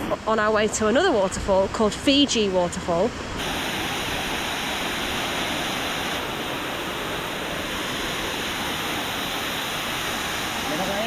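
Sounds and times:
waterfall splashing onto rocks: 3.4 - 11.0.

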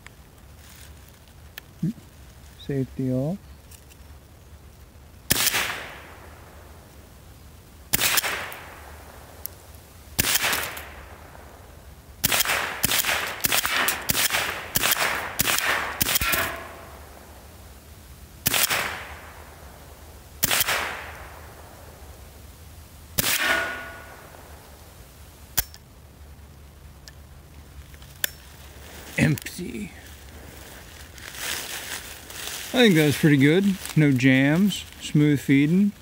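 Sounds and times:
rifle shots with echo: 5.3 - 6.6, 7.9 - 9.4, 10.2 - 11.6, 12.2 - 17.3, 18.4 - 19.8, 20.4 - 21.9, 23.2 - 24.6.

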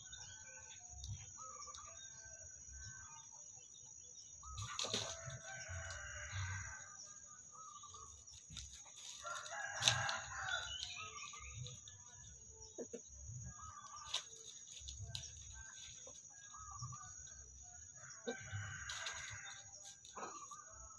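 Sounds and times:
chickens clucking: 4.5 - 6.3, 7.1 - 20.9
rooster crowing: 4.6 - 8.0, 9.1 - 11.4, 17.8 - 20.9.

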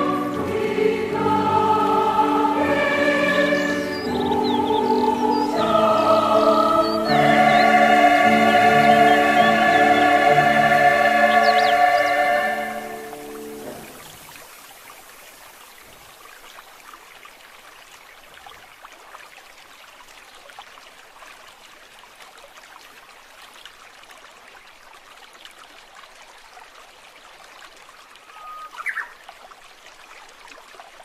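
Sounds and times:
high-pitched upward sweep: 0.0 - 13.6
water trickling: 0.0 - 31.0.

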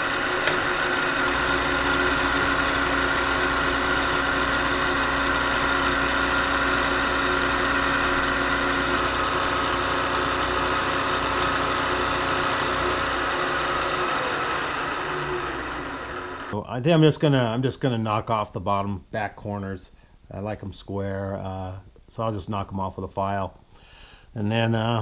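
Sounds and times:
milling machine cutting wood: 0.0 - 16.6.

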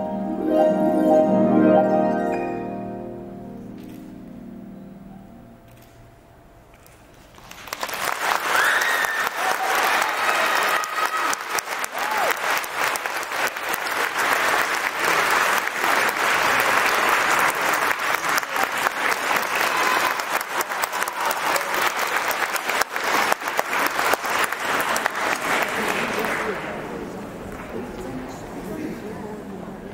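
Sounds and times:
audience applauding: 7.1 - 27.7.

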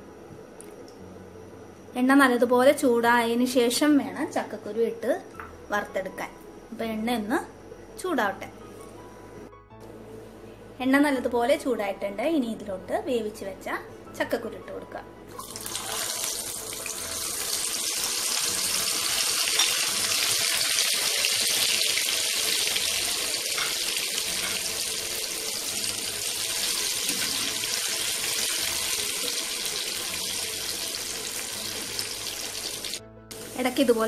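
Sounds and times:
seeds deep-frying in oil: 15.4 - 34.0.

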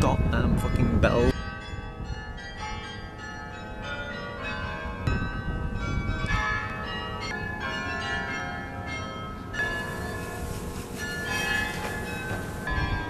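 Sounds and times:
wind rumble on microphone: 0.0 - 2.8, 4.8 - 6.9, 9.8 - 13.0
church bells pealing: 0.0 - 13.0.

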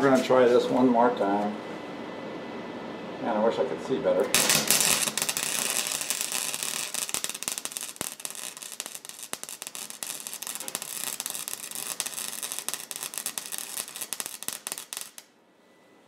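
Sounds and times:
welding arc crackling and sizzling: 4.3 - 15.3.

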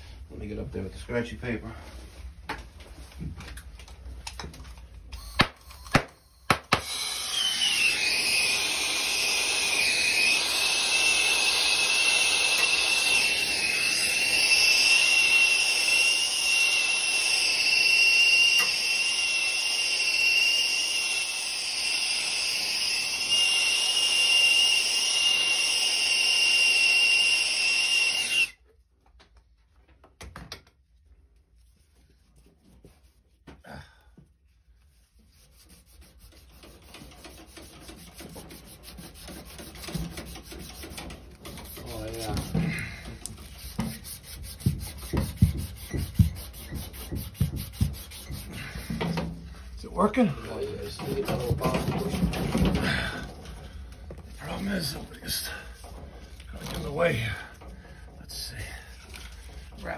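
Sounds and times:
torch hissing and whistling: 6.8 - 28.6.

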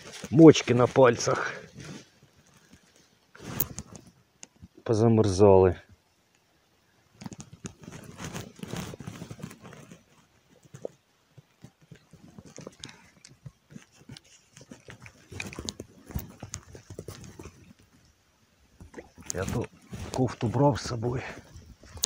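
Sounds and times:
clothing rustling against camera: 0.0 - 4.8, 7.1 - 22.0.

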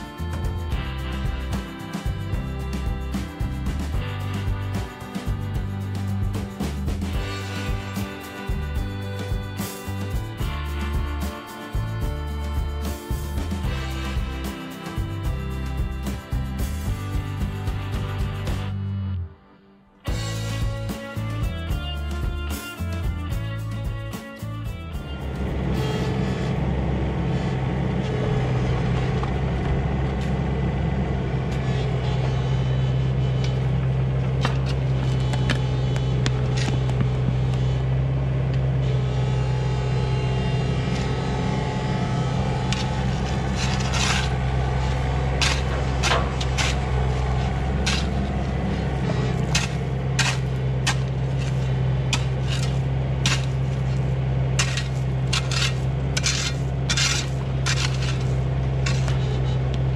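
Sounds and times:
diesel engine running: 0.0 - 19.3, 20.0 - 59.9
shovel scraping in gravel: 42.5 - 59.8.

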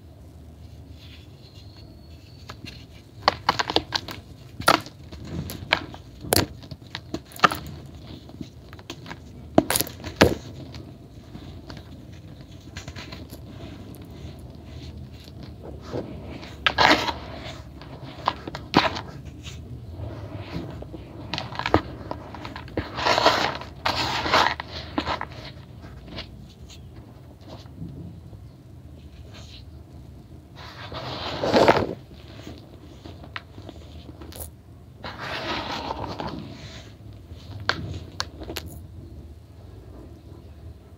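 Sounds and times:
grit and powder rubbing: 0.6 - 27.7, 30.6 - 38.7
hands crunching gritty block: 2.3 - 19.3.

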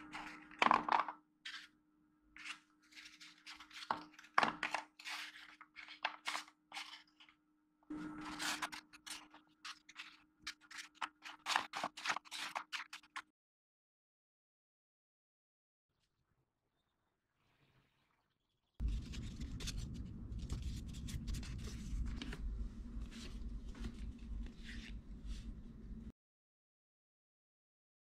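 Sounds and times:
stiff paper rustling: 2.4 - 7.4, 8.1 - 13.2, 18.8 - 26.1
faint low hum: 18.8 - 26.1.

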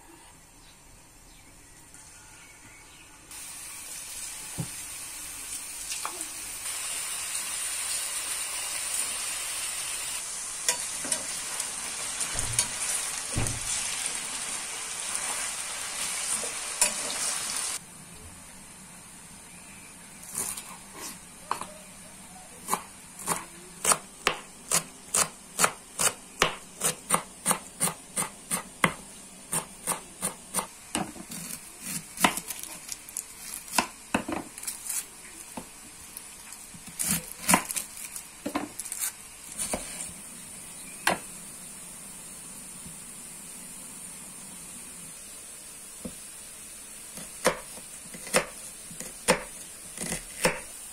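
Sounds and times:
knife chopping on cutting board: 47.2 - 50.7.

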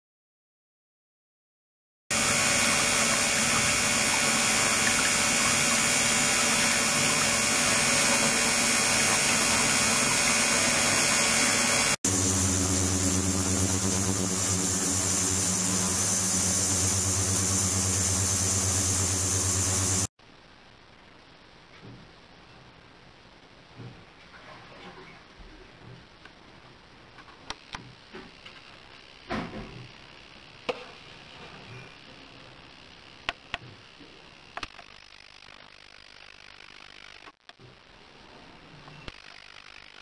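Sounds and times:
ultrasonic cleaner hissing: 2.1 - 20.1
water flowing: 2.2 - 20.1
low hum with overtones: 12.1 - 21.6.

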